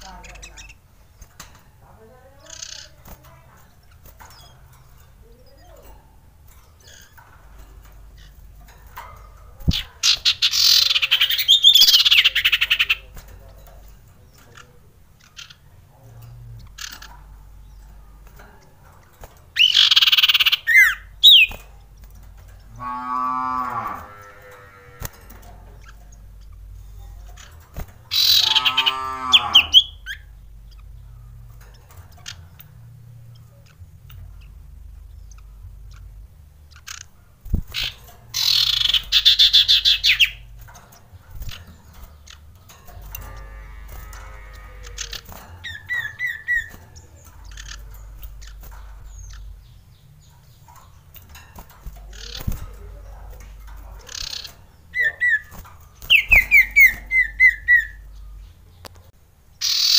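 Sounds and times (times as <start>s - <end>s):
bird high rapid trilling: 54.1s - 58.0s.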